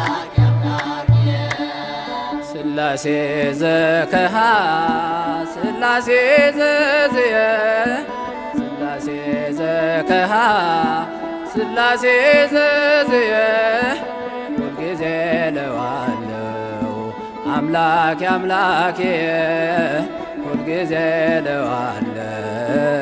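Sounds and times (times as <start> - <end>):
sharp percussion strikes: 0.0 - 2.3
instrumental accompaniment: 0.0 - 23.0
man singing a hymn: 0.0 - 23.0.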